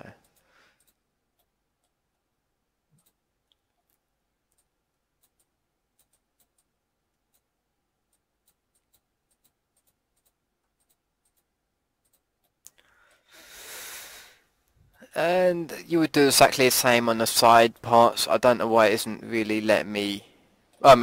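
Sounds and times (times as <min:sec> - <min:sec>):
computer mouse clicks: 0:02.9 - 0:07.5, 0:08.1 - 0:13.2.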